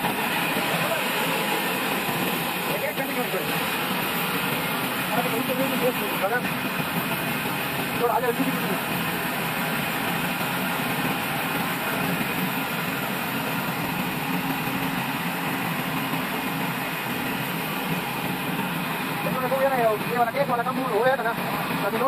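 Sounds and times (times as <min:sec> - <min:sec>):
band sawmill running: 0:00.0 - 0:22.0.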